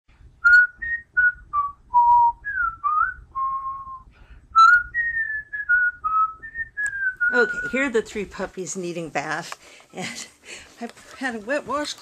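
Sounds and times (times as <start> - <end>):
person whistling a tune: 0.4 - 7.8.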